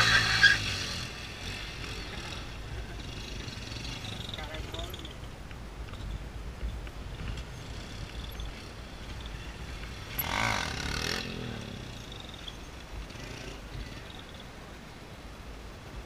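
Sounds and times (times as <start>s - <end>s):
motorcycle engine revving: 0.0s - 5.0s, 7.2s - 14.3s.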